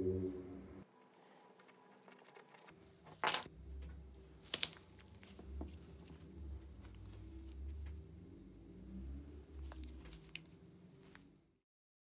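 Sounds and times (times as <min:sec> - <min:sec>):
faint low hum: 0:00.0 - 0:11.6
tape wrapping handling noise: 0:04.4 - 0:06.1.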